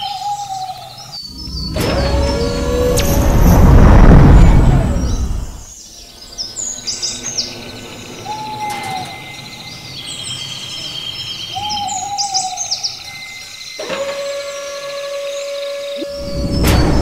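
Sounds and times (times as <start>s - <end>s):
hooting call: 8.2s - 9.7s.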